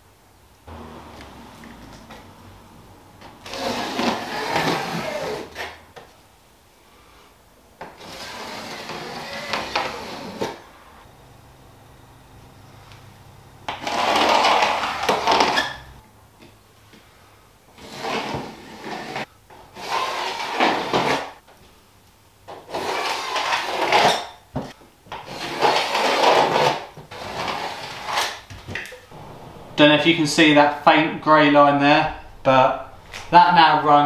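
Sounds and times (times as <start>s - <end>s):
pencil scraping along wall: 3.4s - 5.9s, 7.8s - 10.7s, 13.7s - 16.0s, 17.8s - 21.4s, 22.7s - 24.3s, 25.1s - 28.5s.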